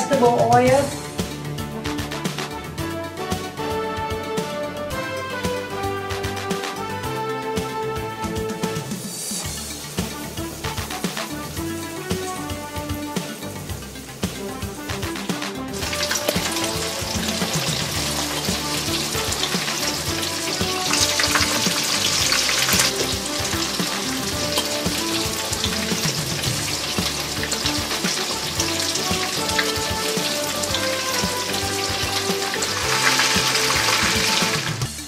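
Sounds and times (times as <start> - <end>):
fish sizzling in a frying pan: 8.9 - 35.0.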